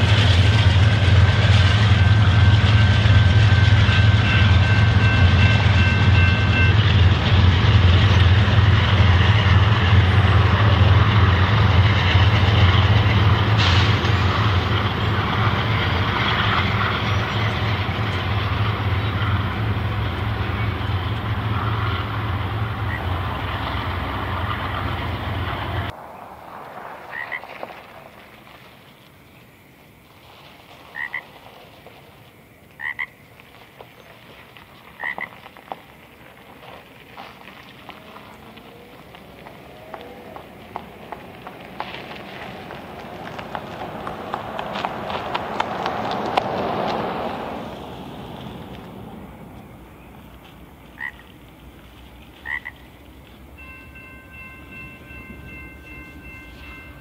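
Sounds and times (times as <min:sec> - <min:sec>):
freight train rumbling past: 0:00.0 - 0:57.0
faint frogs croaking: 0:22.7 - 0:23.6, 0:26.0 - 0:36.4, 0:49.6 - 0:51.4, 0:52.4 - 0:53.0.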